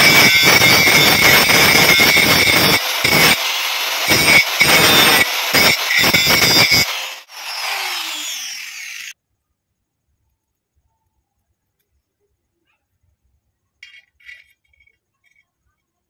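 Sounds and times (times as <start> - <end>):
angle grinder grinding steel: 0.0 - 9.2.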